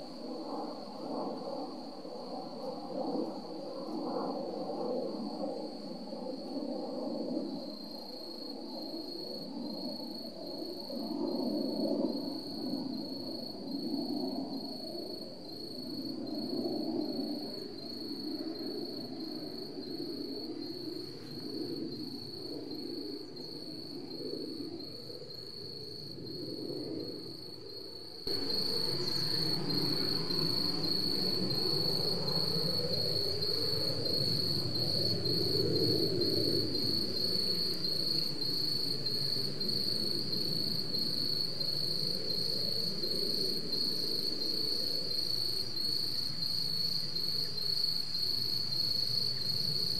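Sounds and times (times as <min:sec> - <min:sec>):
insects chirring in a high trill: 0:00.0 - 0:49.9.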